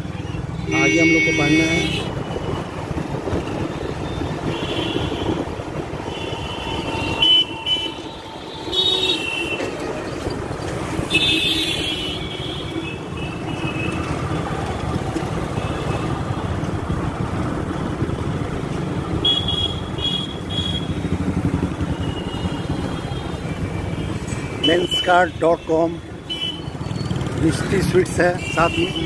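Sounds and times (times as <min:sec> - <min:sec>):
traffic engines and road rumble: 0:00.0 - 0:29.0
vehicle horns honking: 0:00.6 - 0:02.5, 0:04.0 - 0:05.4, 0:06.0 - 0:09.8, 0:11.0 - 0:14.1, 0:19.2 - 0:21.0, 0:21.9 - 0:26.8, 0:28.2 - 0:29.0.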